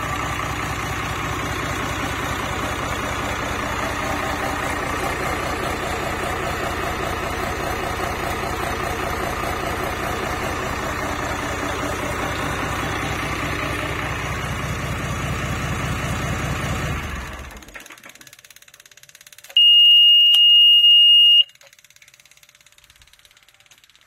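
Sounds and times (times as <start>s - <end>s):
marine diesel engine running: 0.0s - 19.7s
high buzzer beep: 19.6s - 21.5s.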